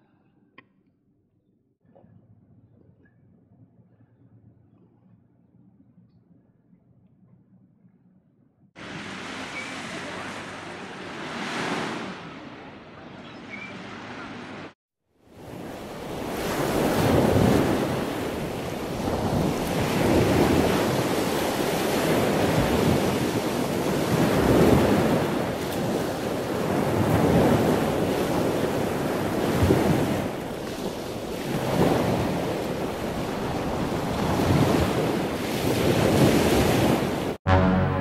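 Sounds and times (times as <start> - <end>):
sea waves washing ashore: 8.8 - 37.4.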